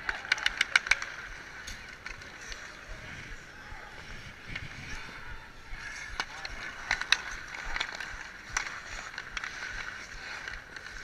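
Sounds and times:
hockey sticks and puck clacking: 0:00.0 - 0:11.0
skates scraping on ice: 0:00.0 - 0:11.0.

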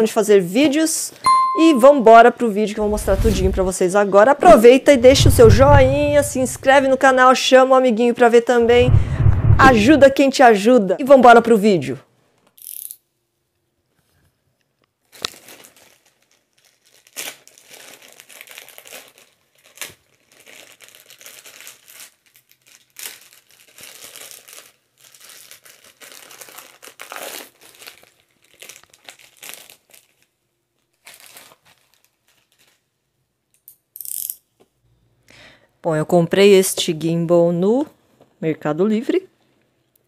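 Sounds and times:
plastic bag being torn: 0:15.0 - 0:32.9
plastic crinkling and rustling: 0:15.0 - 0:33.0.

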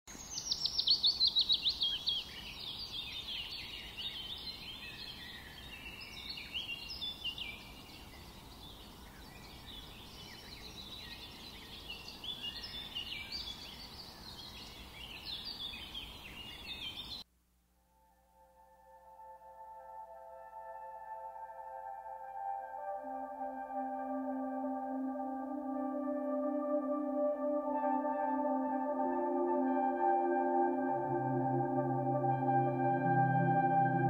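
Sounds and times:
small birds chirping: 0:00.1 - 0:17.2
faint steady hiss: 0:00.1 - 0:33.7.

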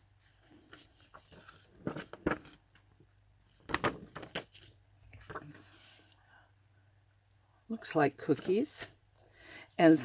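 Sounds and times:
paper rustling and crackling: 0:00.2 - 0:02.6, 0:03.5 - 0:06.1.

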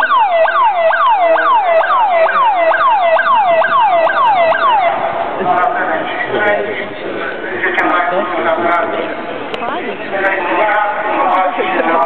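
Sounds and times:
emergency vehicle siren: 0:00.0 - 0:05.4.

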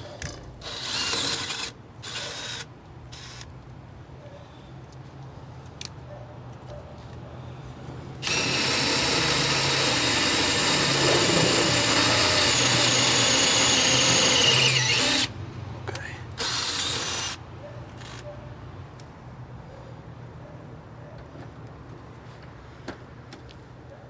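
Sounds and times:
cordless drill driving a screw: 0:00.6 - 0:03.5, 0:08.2 - 0:15.3, 0:16.4 - 0:17.4.

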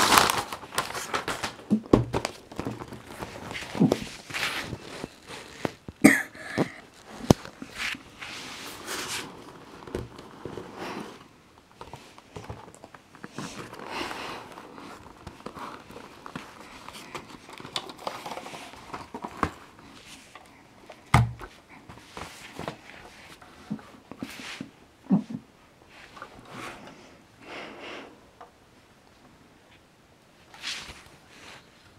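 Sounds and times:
cardboard box rustling: 0:00.0 - 0:05.9, 0:06.8 - 0:24.7.

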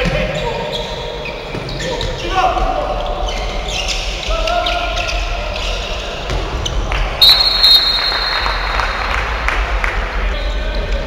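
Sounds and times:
referee's whistle blast: 0:07.2 - 0:08.9.

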